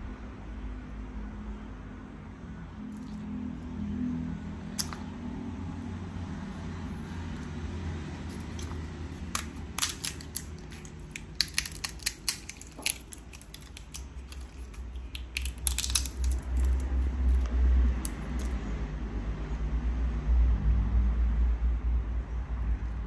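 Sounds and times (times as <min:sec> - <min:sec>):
pod shells cracking: 0:02.9 - 0:03.2, 0:04.7 - 0:05.1, 0:08.3 - 0:18.6.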